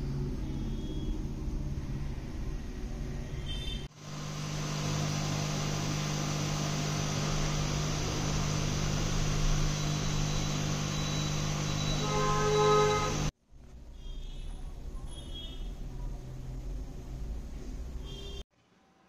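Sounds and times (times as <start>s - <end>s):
machine hum with low drone: 4.0s - 13.3s.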